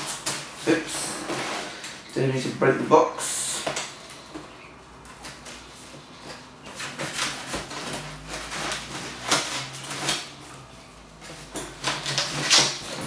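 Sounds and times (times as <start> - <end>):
cardboard flaps scraping and rustling: 0.0 - 2.0, 5.0 - 13.0.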